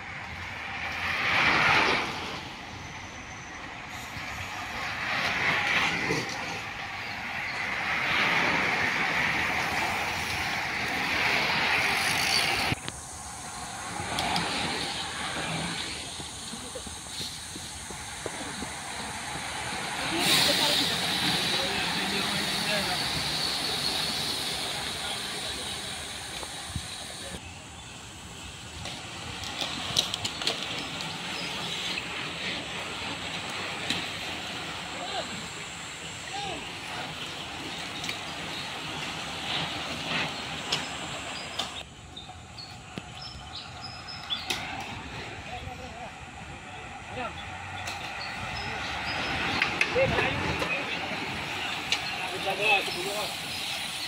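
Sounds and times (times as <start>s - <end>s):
bicycle tyres hissing on concrete: 0.0s - 54.0s.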